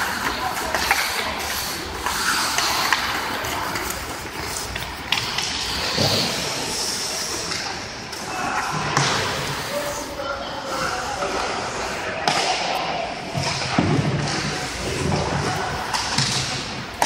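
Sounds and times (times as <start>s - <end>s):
skate blades scraping on ice: 0.0s - 7.6s
hockey sticks and puck clacking: 0.0s - 10.0s, 10.7s - 17.0s.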